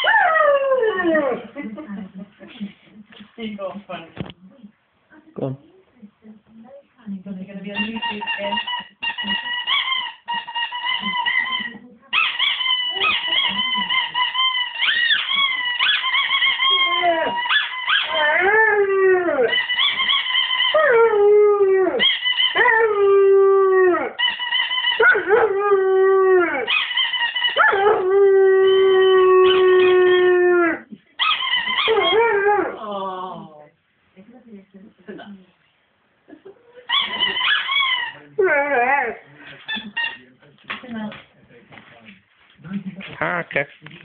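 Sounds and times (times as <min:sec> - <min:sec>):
rubber squeaky toy squeaking: 0:07.7 - 0:18.2, 0:19.5 - 0:20.8, 0:22.0 - 0:22.6, 0:24.2 - 0:25.1, 0:26.7 - 0:27.6, 0:31.2 - 0:32.2, 0:36.9 - 0:38.4, 0:39.6 - 0:40.3
dog howling: 0:12.4 - 0:33.4, 0:37.0 - 0:39.2.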